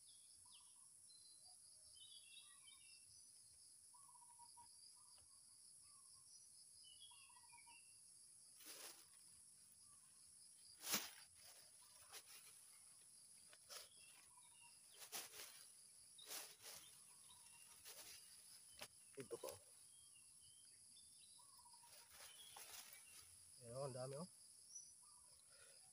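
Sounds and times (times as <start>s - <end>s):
bird chirps: 0.0s - 8.1s, 9.8s - 25.9s
high insect drone: 8.2s - 25.8s
plastic bag rustling: 8.6s - 9.1s, 10.8s - 12.6s, 14.9s - 15.6s, 16.2s - 18.3s.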